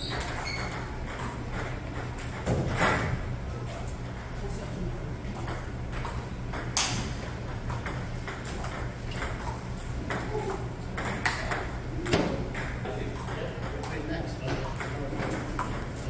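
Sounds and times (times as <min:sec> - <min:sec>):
ball bouncing on table: 0:07.7 - 0:13.9.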